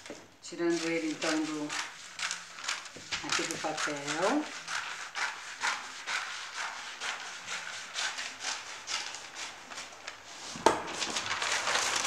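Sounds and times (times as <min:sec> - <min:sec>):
paper rustling: 0:00.0 - 0:12.0
scissors cutting paper: 0:00.7 - 0:05.7.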